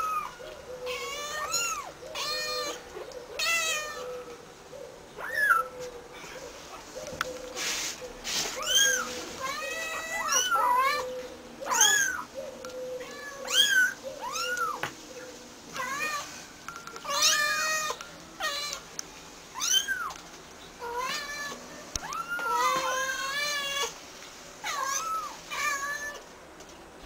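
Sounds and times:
kittens meowing: 0:00.0 - 0:02.8, 0:08.6 - 0:12.3, 0:13.0 - 0:14.9, 0:19.6 - 0:20.2, 0:20.8 - 0:24.0, 0:24.6 - 0:26.2.

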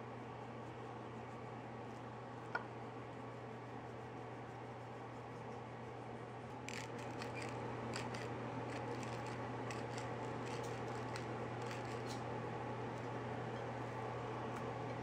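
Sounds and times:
steady low hum: 0:00.0 - 0:15.0
crisp clicks and ticks: 0:06.6 - 0:12.2.

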